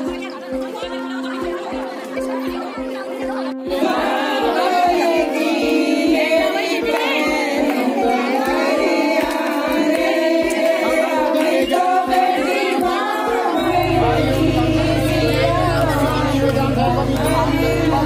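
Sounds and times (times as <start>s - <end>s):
person singing with pitch bends: 10.2s - 18.0s
long held musical notes: 13.3s - 18.0s
steady beat: 13.6s - 18.0s.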